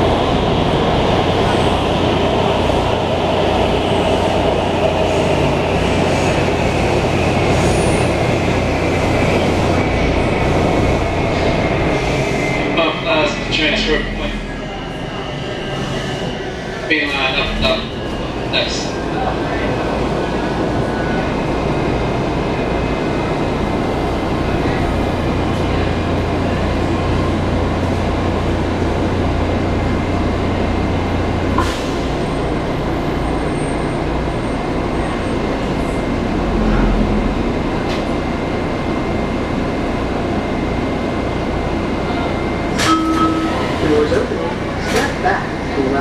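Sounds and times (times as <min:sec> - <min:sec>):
train wheels rumbling on rail: 0:00.0 - 0:46.0
low hum: 0:35.8 - 0:39.0.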